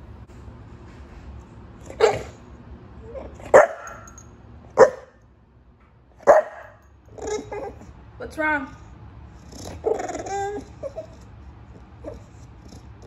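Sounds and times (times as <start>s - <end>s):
puppy barking: 3.4s - 4.1s, 4.8s - 5.2s, 6.2s - 7.8s.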